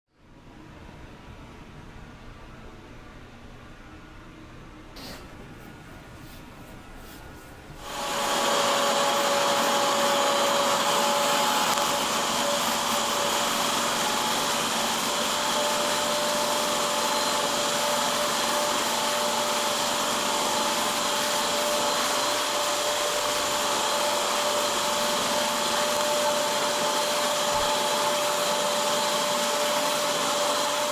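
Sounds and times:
carpet shampooer motor running: 0:07.8 - 0:30.9.

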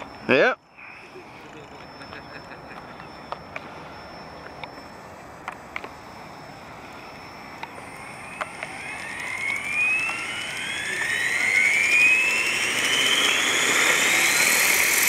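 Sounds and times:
electric motor whine rising: 0:00.0 - 0:15.0
rotor whoosh: 0:00.0 - 0:15.0.

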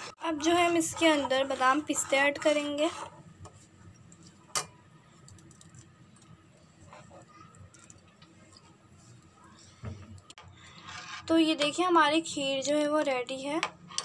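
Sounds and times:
metal spoon scraping a metal pot: 0:00.0 - 0:03.2, 0:10.5 - 0:11.8.

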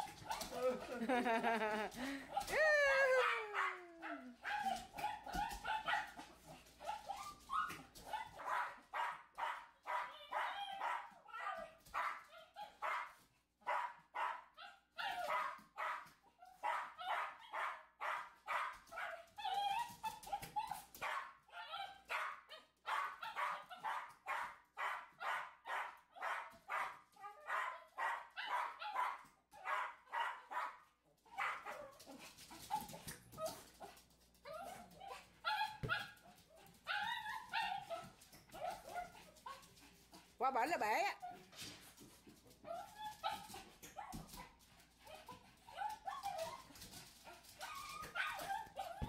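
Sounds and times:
small dog barking: 0:03.2 - 0:07.3, 0:08.1 - 0:16.0, 0:16.6 - 0:19.3, 0:21.0 - 0:32.0.

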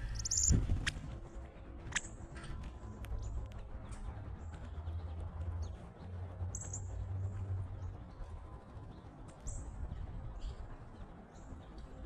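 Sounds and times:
bird chip calls: 0:00.0 - 0:01.0
steady low rumble: 0:00.0 - 0:12.0.

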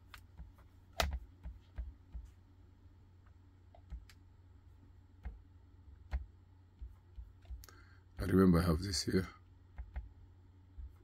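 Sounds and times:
faint low hum: 0:00.0 - 0:11.0
laptop clicks: 0:00.9 - 0:01.8.

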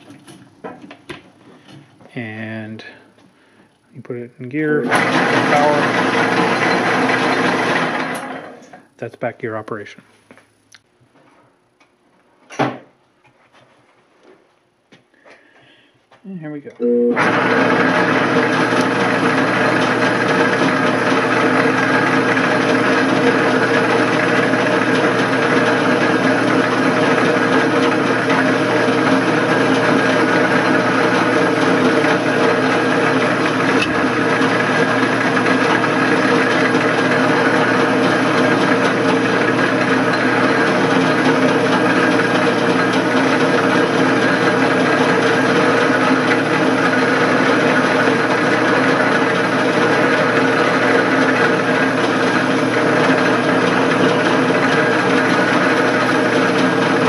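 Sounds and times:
lathe drone and gear whine: 0:04.8 - 0:08.6, 0:16.8 - 0:57.0.

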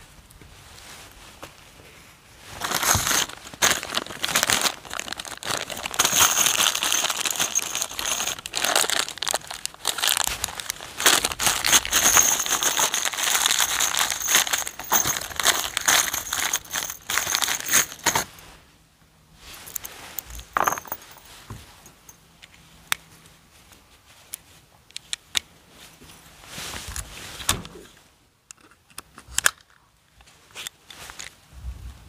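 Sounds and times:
metal rivets clinking: 0:02.6 - 0:18.3, 0:19.7 - 0:21.2
plastic bag crinkling: 0:02.6 - 0:18.3.

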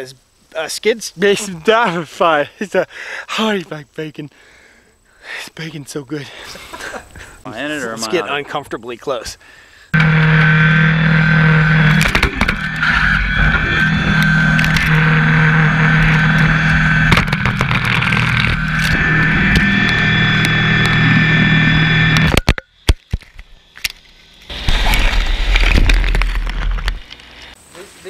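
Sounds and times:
brush cutter high whine: 0:09.9 - 0:27.6
tractor engine running: 0:10.0 - 0:22.5
branches scraping and snapping: 0:15.8 - 0:27.5.

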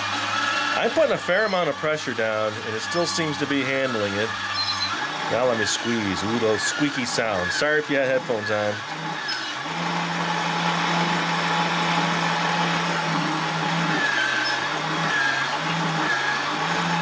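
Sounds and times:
small electric motor humming: 0:00.0 - 0:17.0
short high squeaks: 0:04.4 - 0:05.1, 0:14.1 - 0:14.7.

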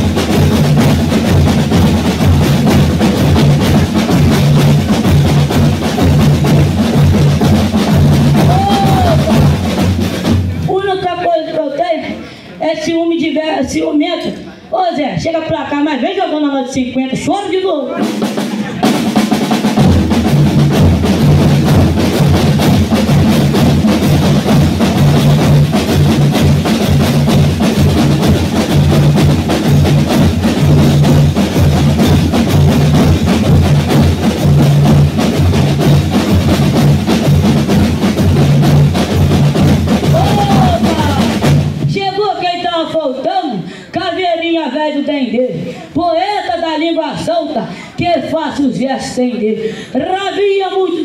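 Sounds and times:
snare and bass drums: 0:00.0 - 0:11.3, 0:17.9 - 0:42.3.

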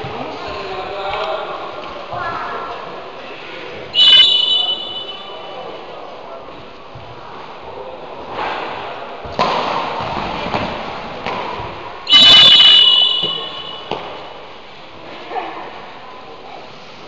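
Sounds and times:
referee's whistle blast: 0:04.0 - 0:05.4, 0:12.1 - 0:13.9.

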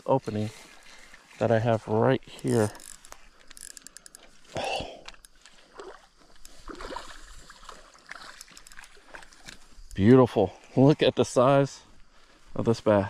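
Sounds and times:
fish splashing in water: 0:05.6 - 0:09.5.

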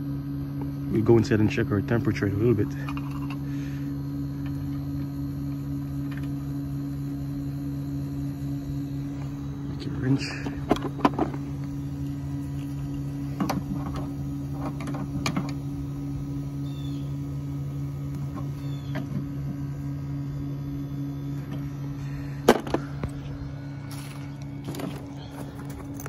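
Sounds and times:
outdoor air conditioner unit humming: 0:00.0 - 0:26.0.

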